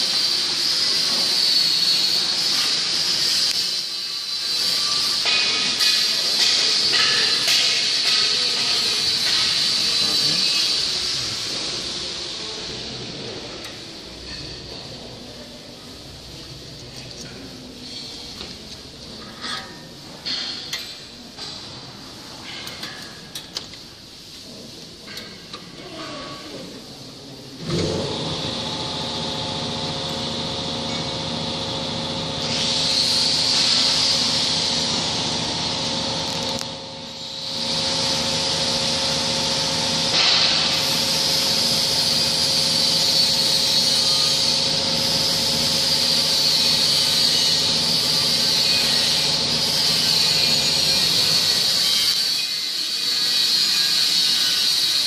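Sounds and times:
machine motor humming and hissing: 0.0 - 20.4, 27.5 - 55.0.

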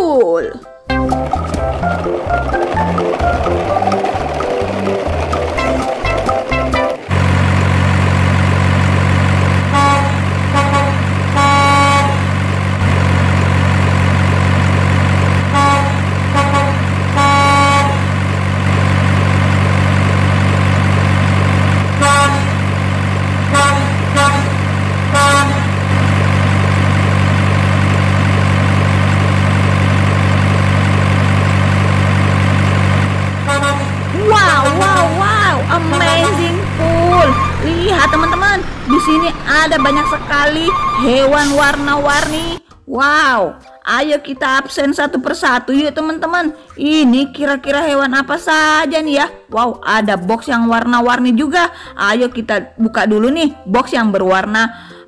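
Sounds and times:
diesel engine drone: 0.9 - 42.6
short horn toots: 9.7 - 12.2, 15.5 - 18.0, 33.5 - 34.0.

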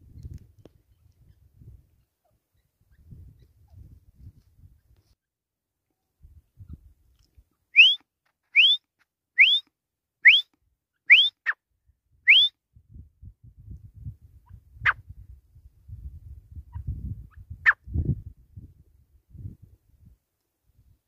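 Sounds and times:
bird shrill whistled calls: 7.8 - 8.0, 8.6 - 8.8, 11.1 - 11.6, 12.3 - 12.5.

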